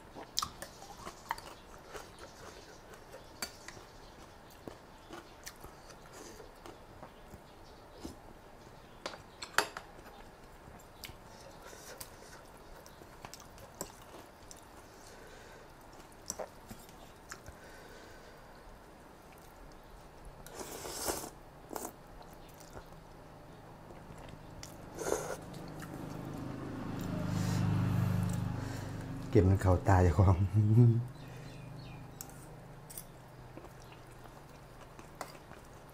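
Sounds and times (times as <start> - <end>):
wet chewing: 0.2 - 7.2, 20.4 - 23.1, 23.8 - 28.5.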